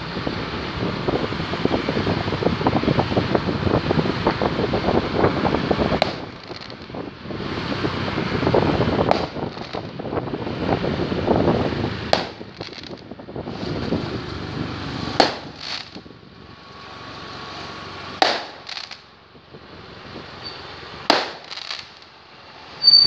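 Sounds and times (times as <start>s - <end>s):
fireworks bangs: 0.0s - 23.0s
rushing noise: 0.0s - 23.0s
faint firework cracks: 5.9s - 7.0s, 9.0s - 10.0s, 12.1s - 13.1s, 15.2s - 16.1s, 18.2s - 19.1s, 21.0s - 22.2s.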